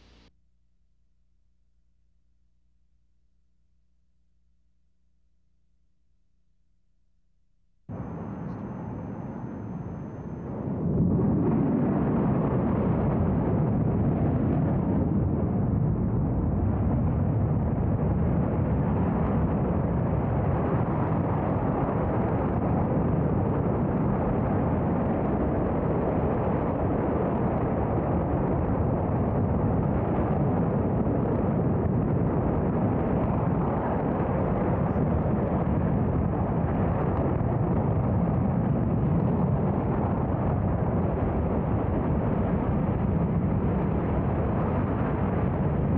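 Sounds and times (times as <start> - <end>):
rocket engine roar: 7.9 - 45.9.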